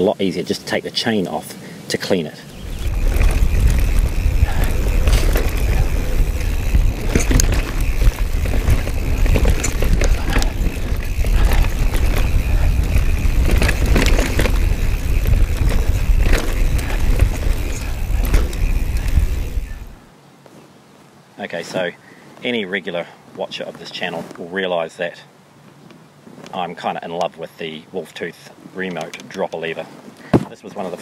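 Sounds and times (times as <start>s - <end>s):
wind buffeting microphone: 2.4s - 20.1s
bike rattling and knocking: 2.5s - 20.1s.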